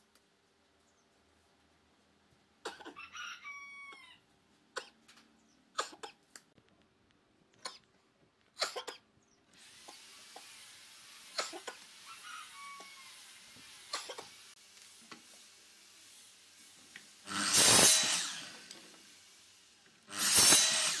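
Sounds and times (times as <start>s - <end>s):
rooster crowing: 2.9s - 4.2s, 12.0s - 13.4s
steady hiss: 9.6s - 20.6s.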